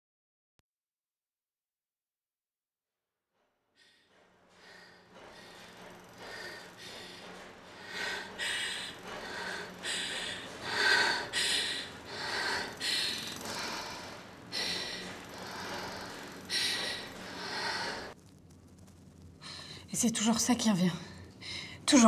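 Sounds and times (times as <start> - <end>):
woman breathing heavily and gasping: 3.8 - 18.2.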